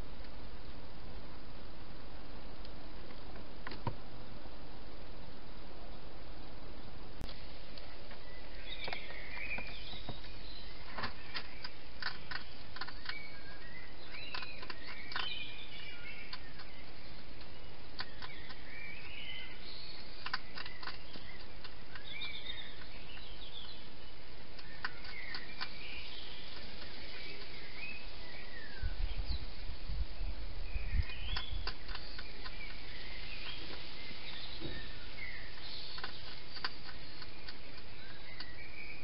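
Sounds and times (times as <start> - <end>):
songbirds chirping: 0.0 - 39.0
steady hiss: 0.0 - 39.0
hedgehog crunching food: 10.9 - 15.5, 20.1 - 23.8.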